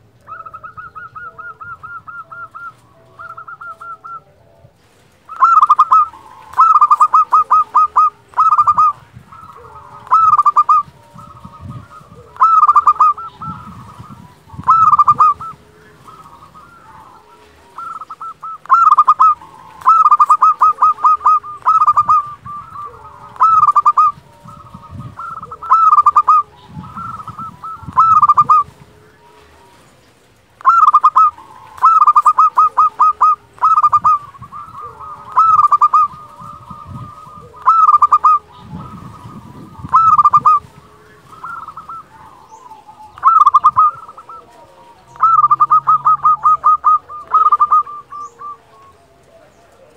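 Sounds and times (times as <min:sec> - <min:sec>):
dove cooing song: 0:00.0 - 0:49.9.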